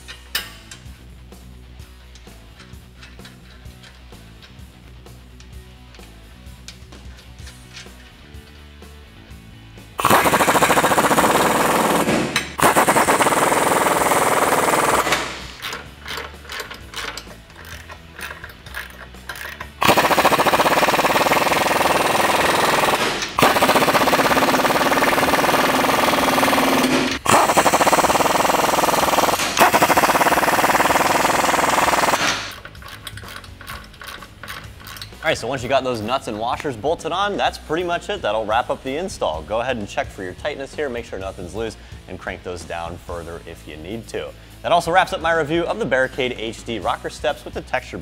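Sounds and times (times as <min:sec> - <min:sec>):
impact wrench hammering nuts: 0:10.0 - 0:35.2.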